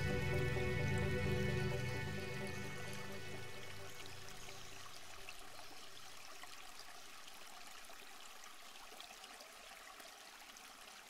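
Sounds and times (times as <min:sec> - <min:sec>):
background music: 0:00.0 - 0:04.9
faint water trickle: 0:00.0 - 0:11.0.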